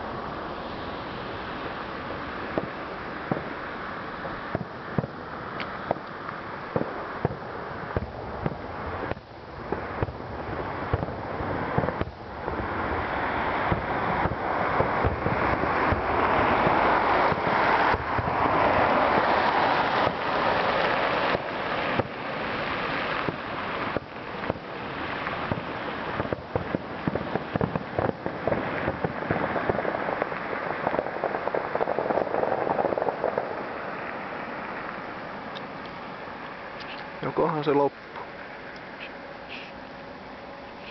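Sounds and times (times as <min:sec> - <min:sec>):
fireworks crackling hiss: 0:00.0 - 0:40.9
firework shells banging: 0:02.4 - 0:33.7.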